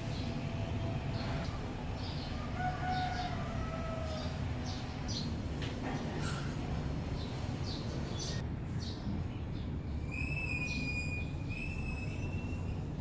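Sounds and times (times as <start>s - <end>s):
birds chirping: 0.0s - 13.0s.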